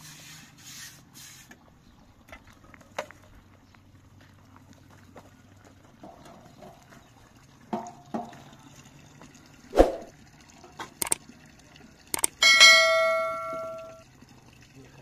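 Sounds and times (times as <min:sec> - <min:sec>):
sharp clicks: 0:12.2 - 0:12.4
ringing metal taps: 0:12.2 - 0:14.0.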